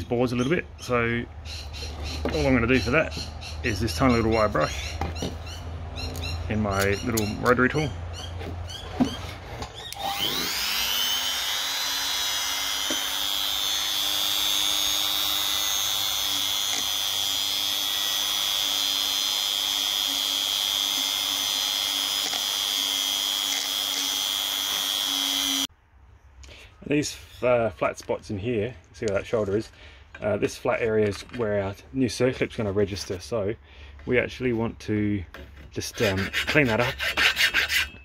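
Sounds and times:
rotary tool whining: 0:08.4 - 0:25.7.

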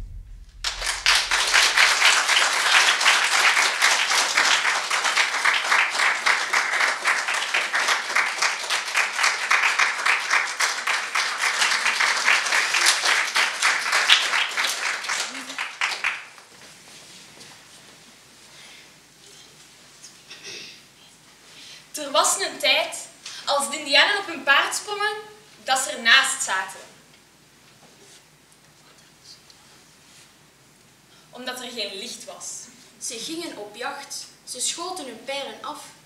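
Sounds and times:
audience applauding: 0:00.6 - 0:16.5.

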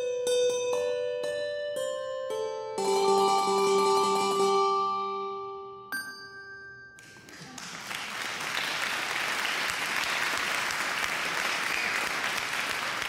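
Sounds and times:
chiming tune: 0:00.2 - 0:07.3
applause: 0:07.0 - 0:13.0.

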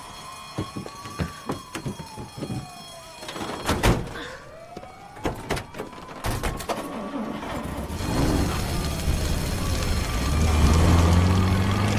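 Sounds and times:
siren wailing: 0:00.0 - 0:11.2.

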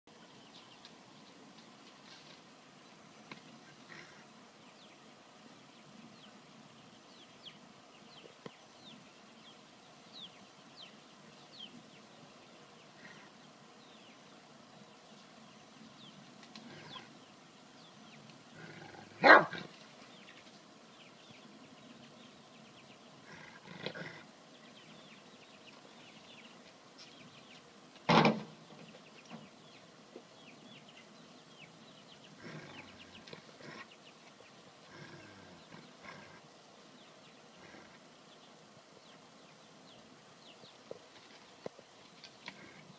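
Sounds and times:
dog barking: 0:19.2 - 0:19.7.

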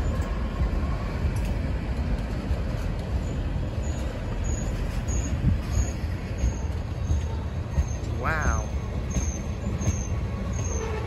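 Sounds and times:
freight train wheels rumbling: 0:00.0 - 0:11.0
faint high squeaks: 0:03.2 - 0:11.0.

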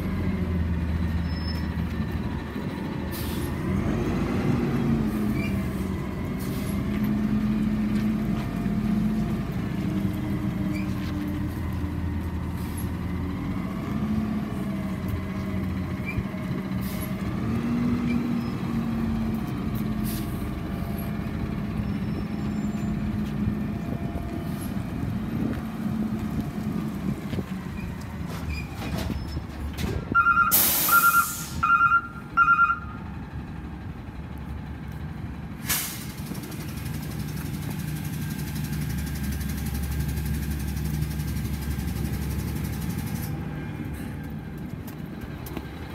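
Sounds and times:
air brake hiss: 0:03.1 - 0:03.5, 0:30.5 - 0:31.6, 0:35.6 - 0:36.3
reverse alarm beeps: 0:30.2 - 0:33.0
garbage truck engine running: 0:33.0 - 0:45.9.

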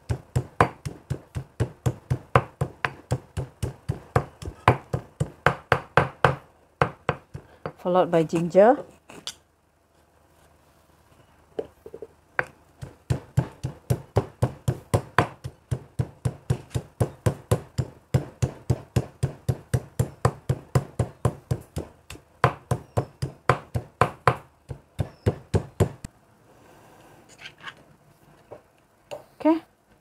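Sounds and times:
pestle pounding in mortar: 0:00.0 - 0:07.8, 0:12.4 - 0:26.1.

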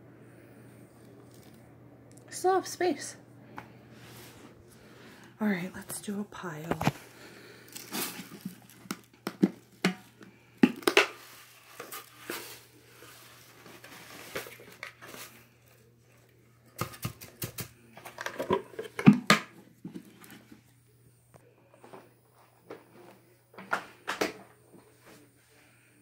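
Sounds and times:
plastic containers clattering: 0:07.6 - 0:12.6, 0:16.8 - 0:20.5.

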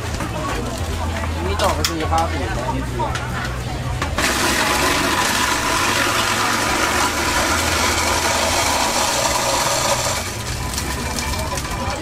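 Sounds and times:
egg sizzling in hot oil: 0:04.2 - 0:12.0.

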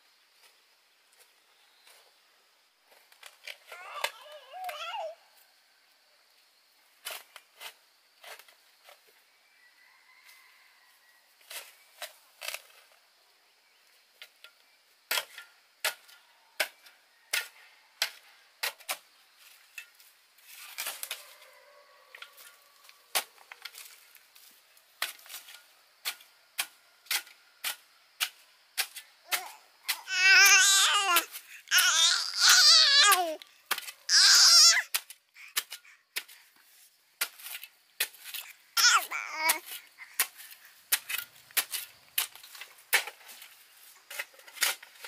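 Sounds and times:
small child crying: 0:03.7 - 0:05.2, 0:29.3 - 0:33.4, 0:34.1 - 0:34.9, 0:38.8 - 0:39.7.

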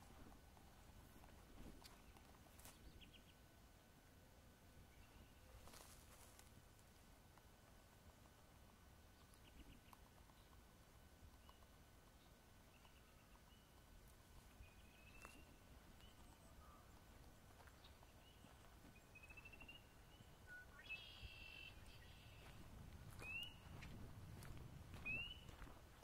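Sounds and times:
footsteps on dirt trail: 0:05.6 - 0:06.6, 0:14.4 - 0:19.9, 0:20.9 - 0:26.0
small birds chirping: 0:08.1 - 0:26.0.

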